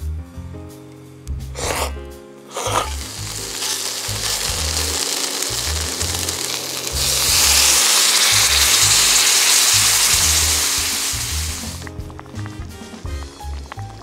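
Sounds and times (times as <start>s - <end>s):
sauce poured onto hot pan: 1.6s - 1.9s, 2.5s - 14.0s
food sizzling in a skillet: 1.6s - 13.2s.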